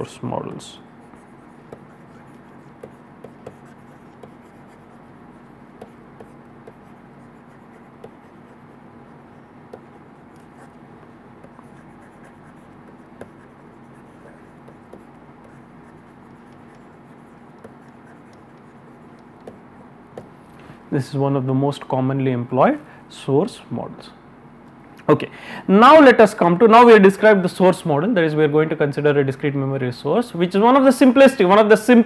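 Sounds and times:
steady low hum: 0.0 - 32.0
stylus tapping and scratching on screen: 1.0 - 20.8.

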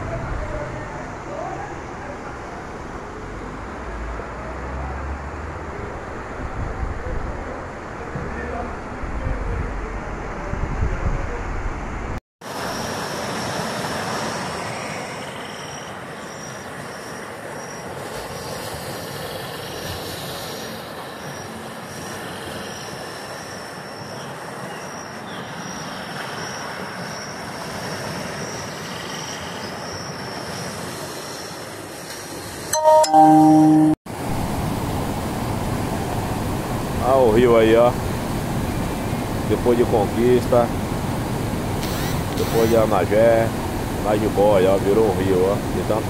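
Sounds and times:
wind buffeting microphone: 5.8 - 12.2
faint high tone: 32.8 - 34.0
river water rushing: 34.1 - 46.0.

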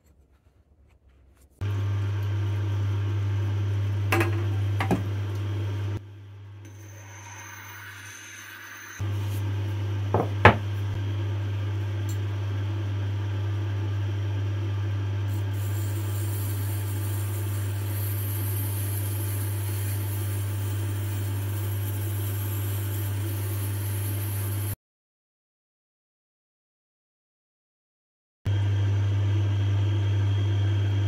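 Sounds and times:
sharpening machine humming: 1.6 - 24.8
blade hissing on grinding stone: 6.8 - 9.0, 15.3 - 24.8.

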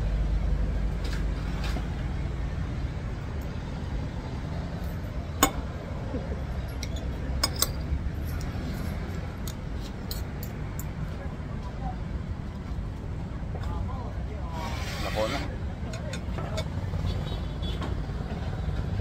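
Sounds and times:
traffic rumble: 0.0 - 19.0
metal spoon clinking on plate: 5.4 - 5.7, 6.7 - 7.9.

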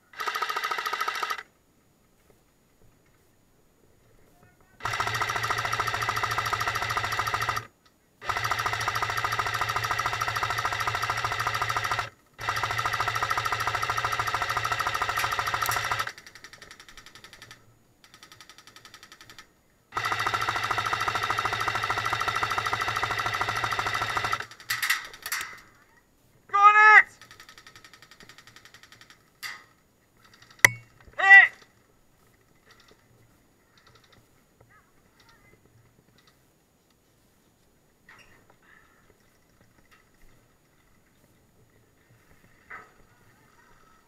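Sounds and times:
airsoft gun firing full-auto bursts: 0.0 - 1.5, 4.8 - 25.2, 27.2 - 29.2.

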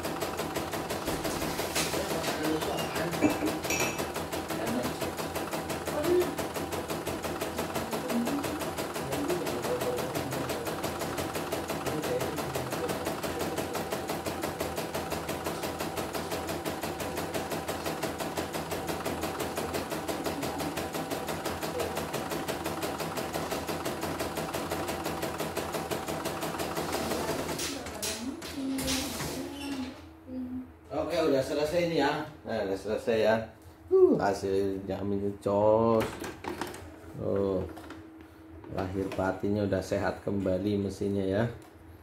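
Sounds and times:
loud machine clack: 0.0 - 28.2
embroidery machine stitching: 0.0 - 29.4.

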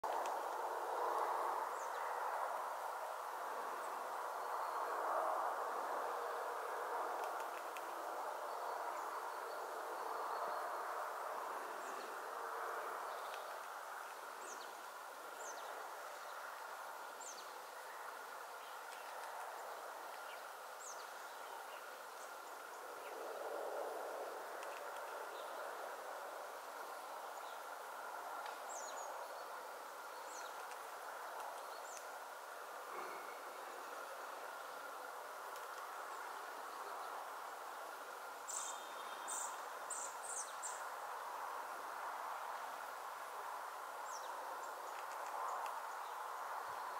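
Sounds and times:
faint steady tone: 0.0 - 46.9
outdoor background noise: 0.0 - 46.9
small birds chirping: 13.0 - 23.3, 28.4 - 34.9, 38.5 - 40.9.

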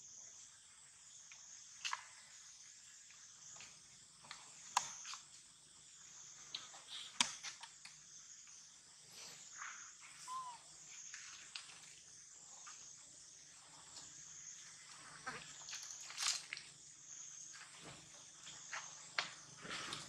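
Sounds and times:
insects droning: 0.0 - 20.0
short chirp: 10.2 - 10.7
dry leaves and twigs rustling: 15.4 - 16.8.

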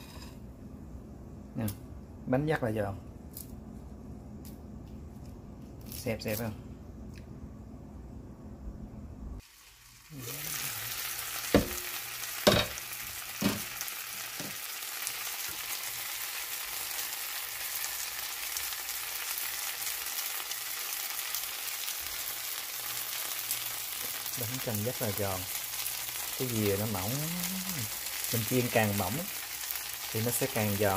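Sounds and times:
pancake sizzling in oil: 9.4 - 30.9.

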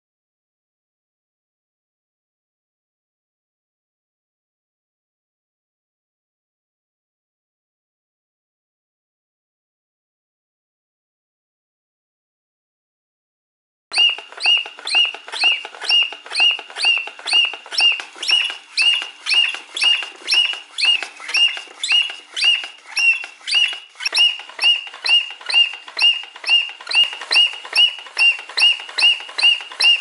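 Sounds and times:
whistled bird chirps: 13.9 - 30.0.

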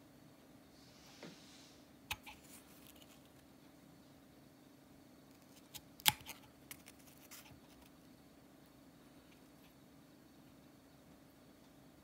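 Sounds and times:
faint low hum: 0.0 - 12.0
tin snips snipping plastic: 5.7 - 6.9.

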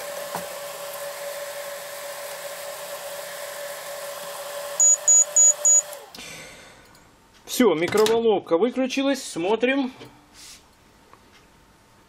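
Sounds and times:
microwave oven humming: 0.0 - 7.4
short high-pitched beeps: 4.8 - 6.0.

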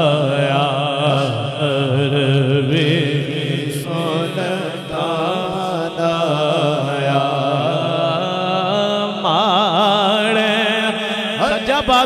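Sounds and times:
man chanting with vibrato: 0.0 - 12.0.

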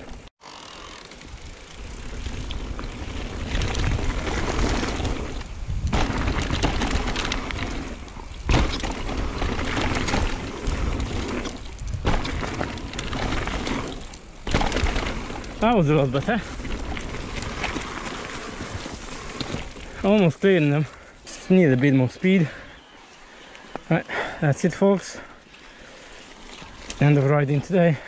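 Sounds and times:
bike rattling: 0.0 - 28.0
bike tyres crunching over dirt: 0.0 - 28.0
wind on microphone: 1.4 - 12.7
bike landing thud: 5.7 - 15.6.

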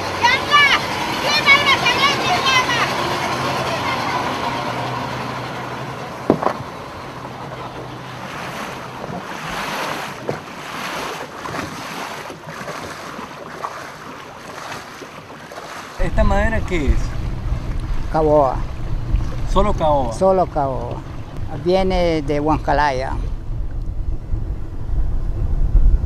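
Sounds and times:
low motor hum: 0.0 - 26.0
water rushing along hull: 0.0 - 26.0
sharp knock: 6.3 - 6.6
wind buffeting microphone: 16.0 - 26.0.

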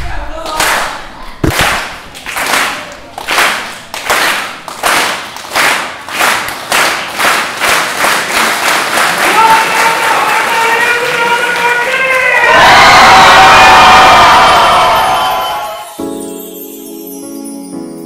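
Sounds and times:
rhythmic handclaps with reverb: 0.4 - 12.6.

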